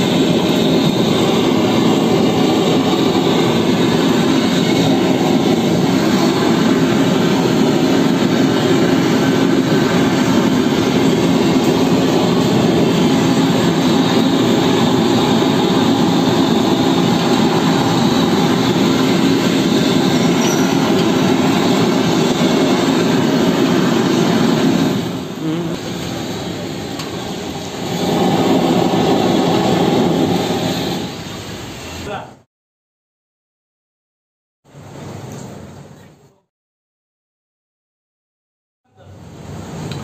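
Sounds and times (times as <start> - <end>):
gas blowtorch hissing: 0.0 - 32.1.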